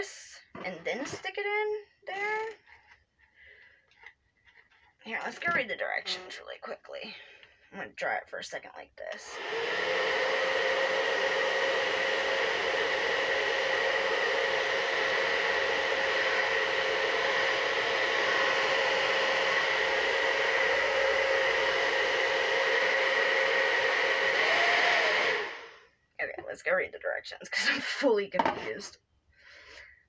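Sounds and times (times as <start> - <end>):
hair dryer whining: 9.1 - 25.9.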